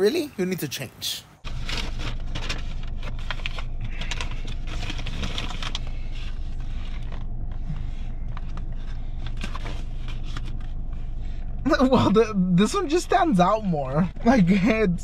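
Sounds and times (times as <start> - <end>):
steady low hum: 1.3 - 15.0
paper bags crinkling: 1.5 - 10.7.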